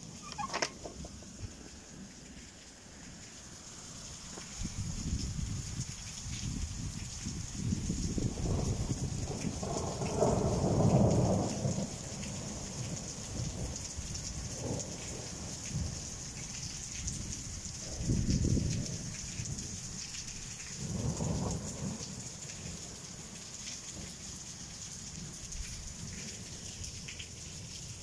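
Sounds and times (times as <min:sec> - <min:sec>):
rain on roof tiles: 0:00.0 - 0:28.0
thunder rumbling: 0:07.6 - 0:16.0.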